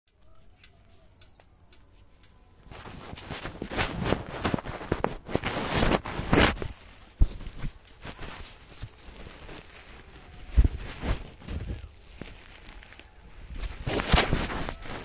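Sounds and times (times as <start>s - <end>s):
faint clicks: 0.1s - 3.6s
handling noise on phone: 2.7s - 15.0s.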